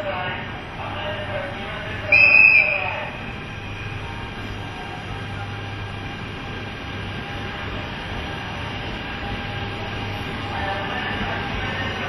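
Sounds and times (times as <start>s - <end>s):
electric locomotive hum and rumble: 0.0s - 12.0s
station noise: 0.0s - 12.0s.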